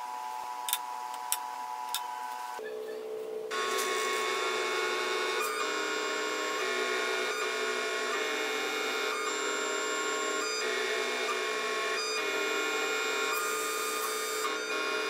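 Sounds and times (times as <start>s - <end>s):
stepper motors whining: 0.0s - 15.0s.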